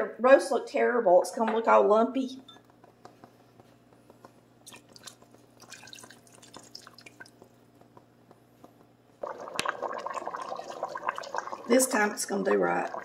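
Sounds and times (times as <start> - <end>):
low steady hum: 0.0 - 13.0
liquid dripping into a pot: 4.6 - 8.1.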